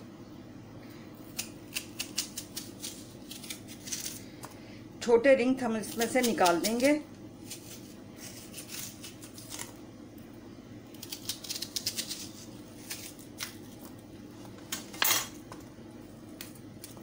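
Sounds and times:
onion layers crackling: 1.3s - 4.3s, 10.9s - 14.4s.

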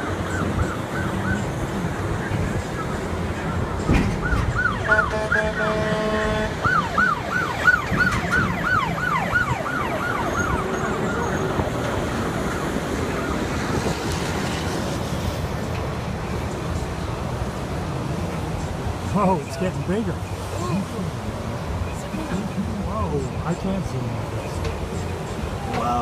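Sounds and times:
siren yelping: 0.0s - 1.8s, 3.5s - 14.0s
highway traffic noise: 0.0s - 26.0s
horn blast: 4.8s - 6.7s.

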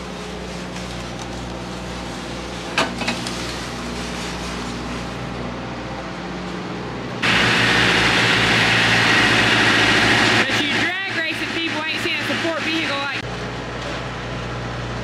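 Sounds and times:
steady mechanical hum: 0.0s - 15.0s
loud steady rushing noise: 7.2s - 13.3s.

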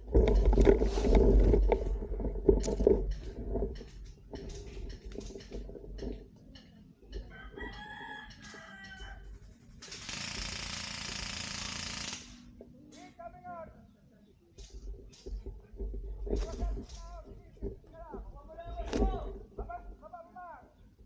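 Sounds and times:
rustling and knocking: 0.0s - 7.8s, 14.6s - 20.0s
rooster crowing: 7.2s - 9.3s.

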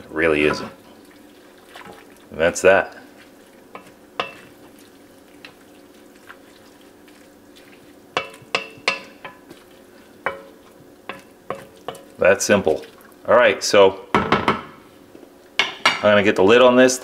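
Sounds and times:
pot simmering: 0.0s - 13.6s
wooden spoon knocking pot: 3.7s - 4.6s, 8.1s - 9.6s, 10.2s - 12.2s.

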